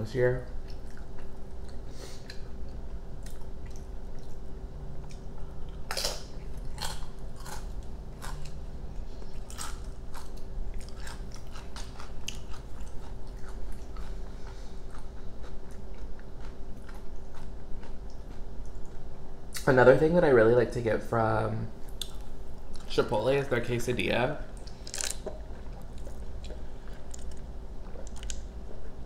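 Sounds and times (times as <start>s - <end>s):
chewing food: 0.5s - 19.1s, 24.6s - 29.0s
crunching a chip: 5.8s - 8.6s, 9.3s - 14.2s, 24.7s - 26.2s.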